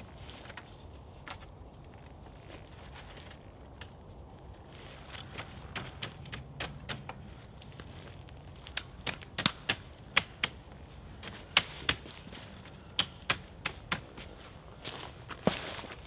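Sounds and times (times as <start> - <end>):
dry sticks clicking and cracking: 3.1 - 14.3.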